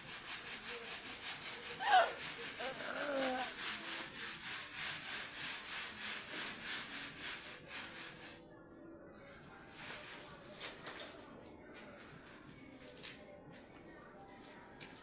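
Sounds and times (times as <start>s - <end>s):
sand hissing through wire mesh: 0.0s - 8.4s.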